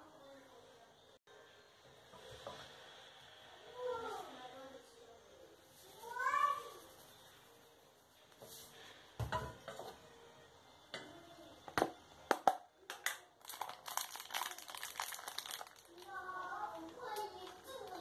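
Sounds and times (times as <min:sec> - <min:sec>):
plastic bag crinkling: 0:13.4 - 0:18.0.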